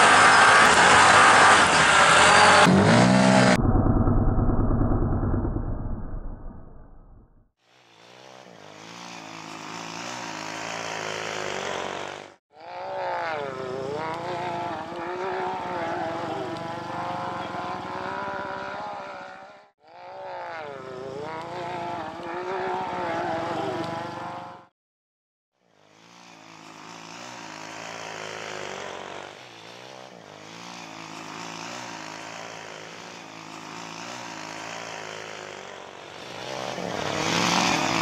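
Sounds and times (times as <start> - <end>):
drone propellers whining: 0.0 - 7.4.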